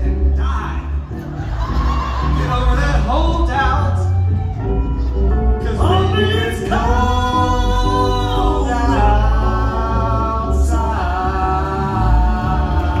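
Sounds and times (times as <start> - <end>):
band playing: 0.0 - 13.0
woman and man singing duet: 5.6 - 13.0.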